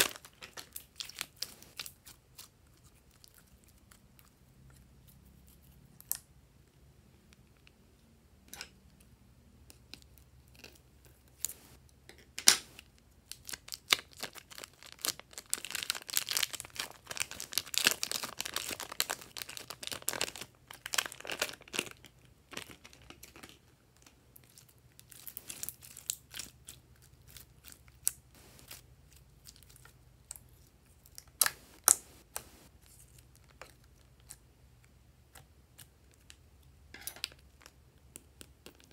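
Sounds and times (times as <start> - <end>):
sticky slime crackling: 0.0 - 4.3
plastic bags crinkling: 13.4 - 23.5.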